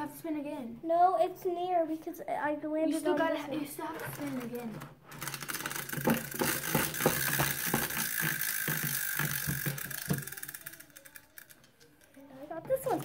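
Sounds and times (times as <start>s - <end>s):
prize wheel flapper clicking: 4.1s - 12.2s.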